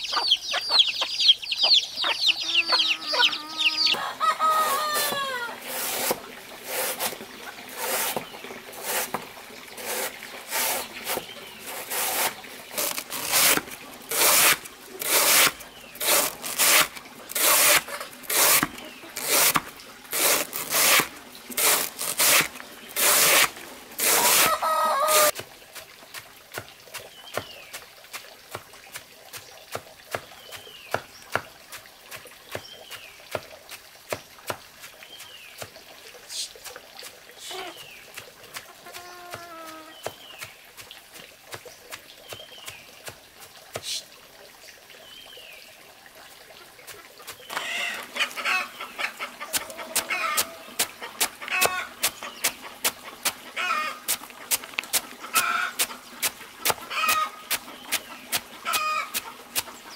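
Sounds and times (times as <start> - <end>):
chicken clucking: 0.0 - 5.6, 38.6 - 39.9, 47.5 - 54.5, 55.2 - 56.0, 56.9 - 59.4.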